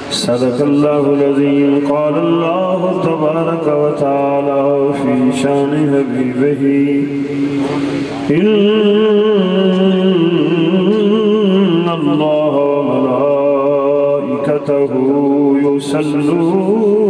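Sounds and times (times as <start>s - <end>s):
man chanting into a microphone: 0.0s - 17.0s.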